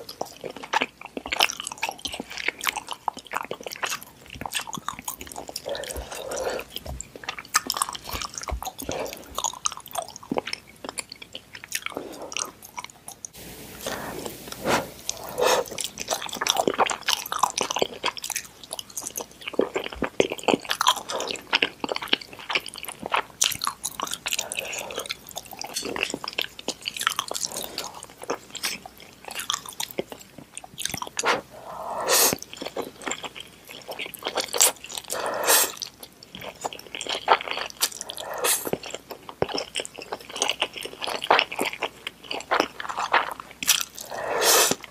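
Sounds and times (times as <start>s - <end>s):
wet chewing and lip smacks: 0.0s - 13.4s, 14.3s - 31.5s, 32.2s - 44.9s
slurping noodles: 13.7s - 16.9s, 24.4s - 25.2s, 31.1s - 32.8s, 34.4s - 35.9s, 37.3s - 39.0s, 43.0s - 44.9s.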